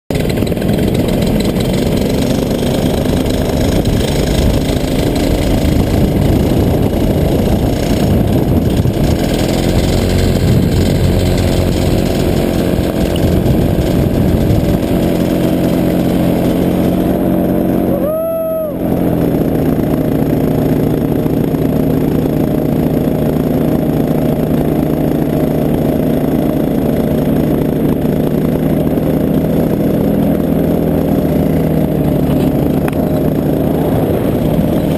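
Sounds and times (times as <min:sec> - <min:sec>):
paramotor engine and propeller: 0:00.1 - 0:34.9.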